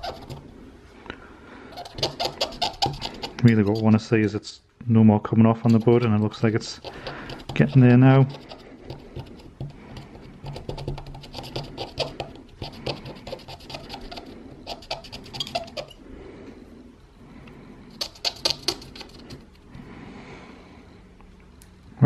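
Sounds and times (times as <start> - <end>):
cotton swab scrubbing metal contacts: 0.0 - 0.4, 1.7 - 4.3, 5.6 - 16.0, 17.9 - 19.6.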